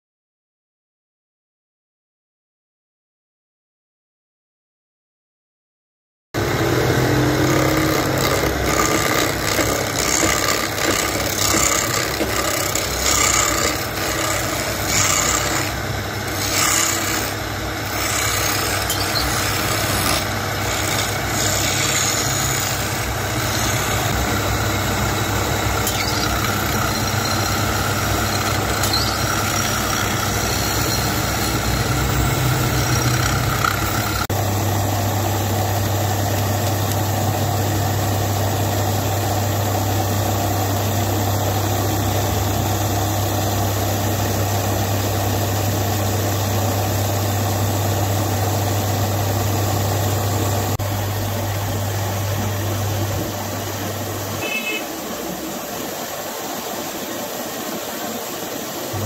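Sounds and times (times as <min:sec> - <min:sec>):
chisel scraping spinning wood: 0:06.4 - 0:34.3
wood lathe motor hum: 0:06.4 - 0:54.4.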